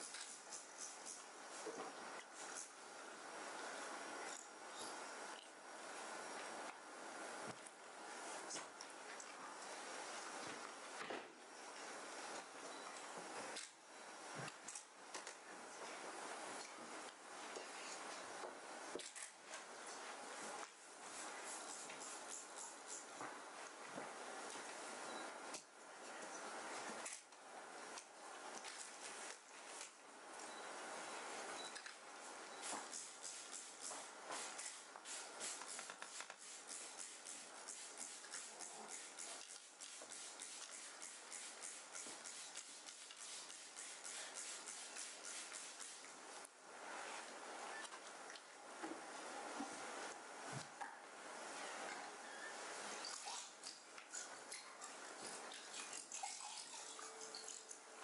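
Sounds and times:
cloth wiping with clicks and rustles: 0.0 - 58.0
faint room hiss: 0.0 - 58.0
spray bottle hissing: 21.1 - 23.1, 32.6 - 46.0.

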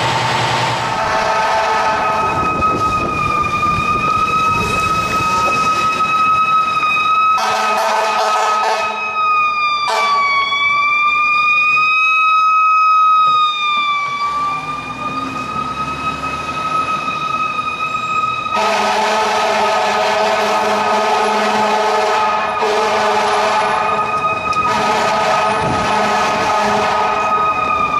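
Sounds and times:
fire engine siren wailing: 0.0 - 27.9
air horn blasts: 0.9 - 2.5, 7.4 - 9.0, 9.9 - 10.2, 18.5 - 24.0, 24.6 - 27.4.

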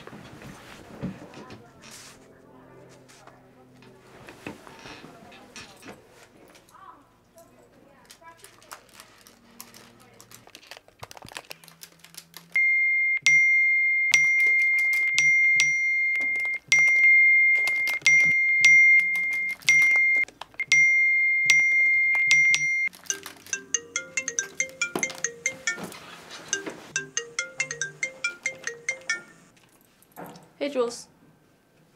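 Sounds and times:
phone ringtone melody: 13.2 - 29.5
typing on laptop keyboard: 16.4 - 20.7, 22.2 - 25.4.

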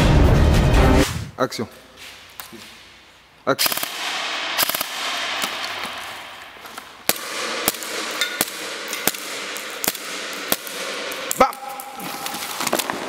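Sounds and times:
airsoft rifle shots: 3.6 - 13.0.

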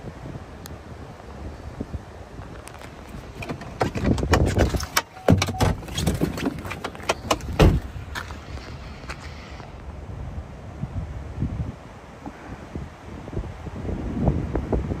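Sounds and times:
camera handling knocks and rattles: 2.5 - 7.9
heavy thuds: 3.4 - 8.4.

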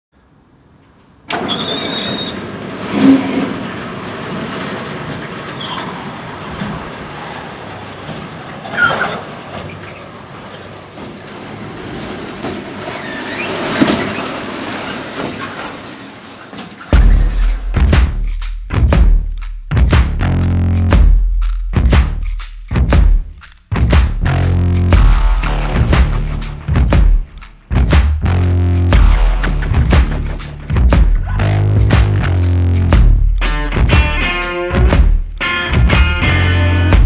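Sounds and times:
brief squeals: 1.4 - 2.4.

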